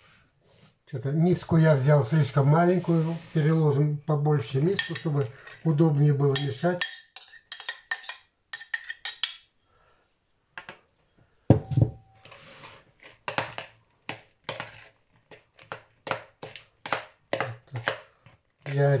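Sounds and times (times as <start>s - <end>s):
spoon stirring in plastic bowl: 4.6s - 9.4s, 12.1s - 19.0s
spoon scraping a bowl: 6.4s - 9.4s, 14.5s - 15.4s
bowl knocking on counter: 11.5s - 12.1s.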